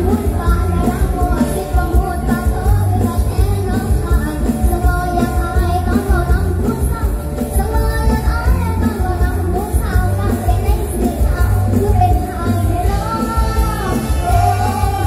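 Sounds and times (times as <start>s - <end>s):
live band playing through pa: 0.0s - 15.0s
person singing melody: 8.2s - 15.0s.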